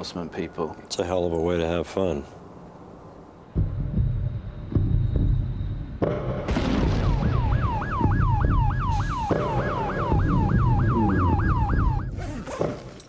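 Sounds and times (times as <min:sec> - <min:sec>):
police siren yelping: 0:07.0 - 0:12.8.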